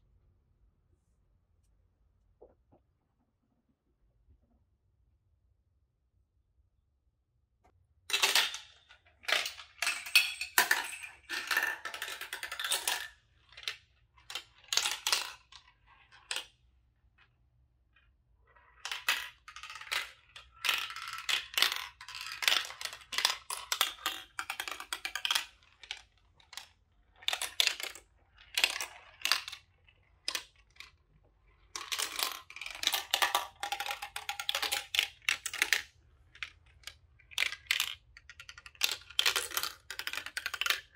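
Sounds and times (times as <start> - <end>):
marbles clicking and rattling: 8.1 - 16.6, 18.6 - 40.9.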